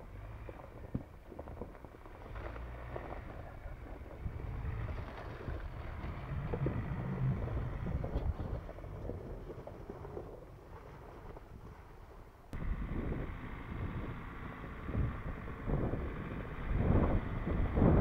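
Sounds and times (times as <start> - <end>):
pickup engine rumble: 0.0 - 18.0
knocks over rough ground: 0.1 - 11.8
wind buffeting microphone: 3.2 - 18.0.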